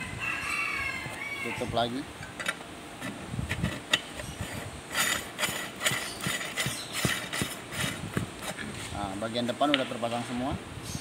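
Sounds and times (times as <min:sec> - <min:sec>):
metal threads scraping: 0:02.2 - 0:08.9.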